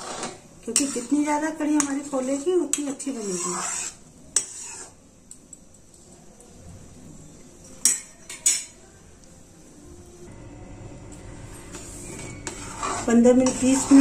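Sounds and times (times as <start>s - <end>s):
metal spoon clinking on pan: 7.6s - 8.8s.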